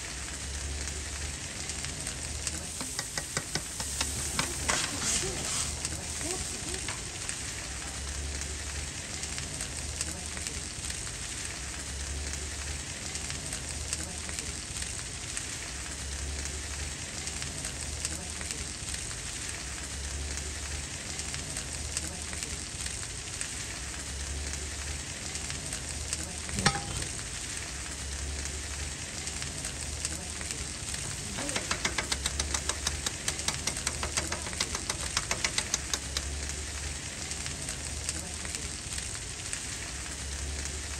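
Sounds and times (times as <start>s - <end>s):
chicken sizzling on a griddle: 0.0s - 40.9s
steel blade chopping on griddle: 2.8s - 4.9s, 26.6s - 27.1s, 31.3s - 36.2s.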